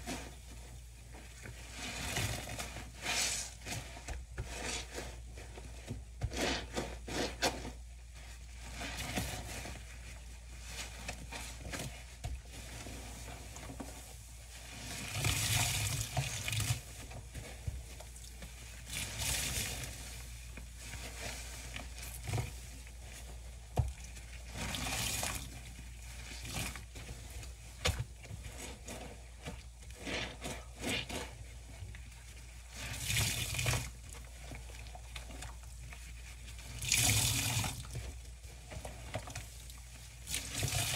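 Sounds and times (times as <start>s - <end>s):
wet sponges squelching: 0.0s - 40.9s
water gushing from sponges: 1.6s - 5.3s, 12.5s - 27.7s, 32.5s - 40.9s.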